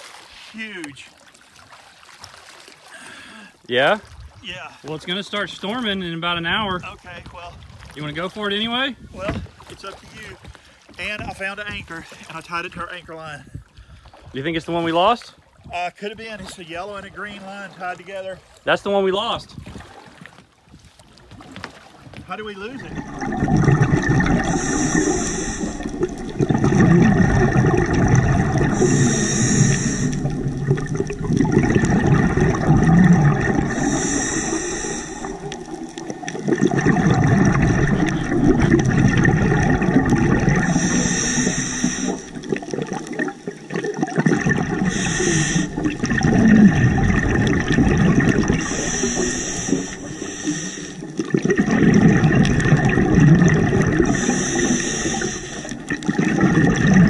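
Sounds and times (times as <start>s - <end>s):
gurgling exhaled bubbles: 22.4s - 57.0s
regulator hissing inhale: 24.3s - 26.4s, 28.6s - 31.0s, 33.6s - 35.5s, 40.5s - 42.5s, 44.8s - 46.0s, 48.4s - 51.2s, 54.0s - 56.0s.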